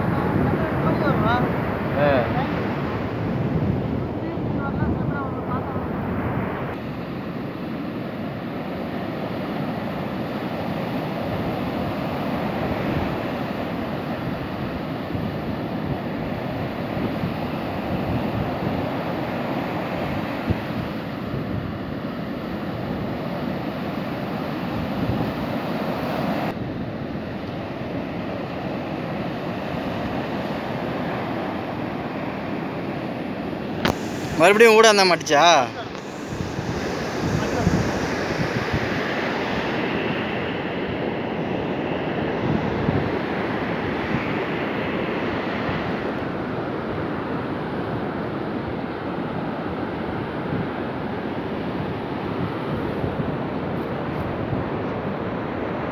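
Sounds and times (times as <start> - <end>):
wind buffeting microphone: 0.0 - 7.4, 11.2 - 23.4, 26.2 - 55.5
ocean surf breaking on beach: 0.0 - 55.9.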